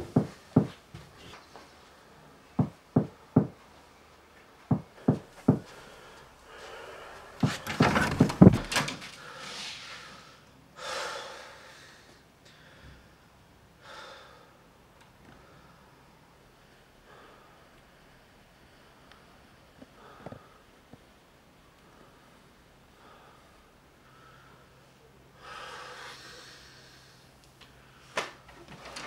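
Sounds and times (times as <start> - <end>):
knocking on a door: 0.0 - 0.8, 2.6 - 3.6, 4.7 - 5.7
door banging and rattling: 7.4 - 9.1.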